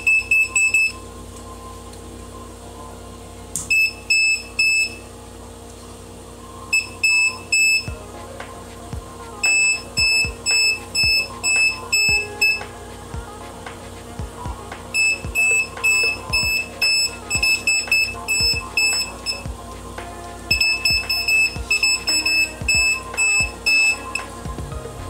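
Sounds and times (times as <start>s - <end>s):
electronic music: 0.0s - 25.0s
voltage tester high beeps: 20.5s - 24.3s.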